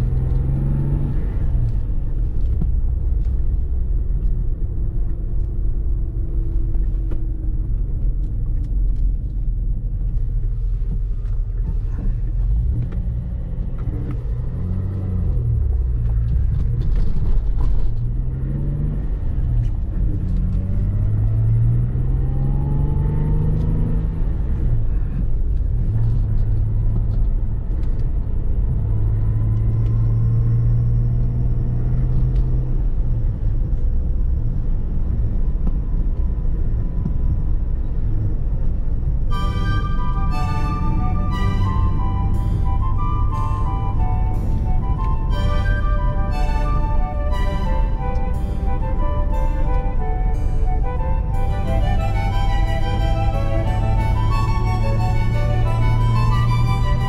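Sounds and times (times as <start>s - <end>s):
road rumble: 0.0s - 57.0s
car engine running: 28.9s - 57.0s.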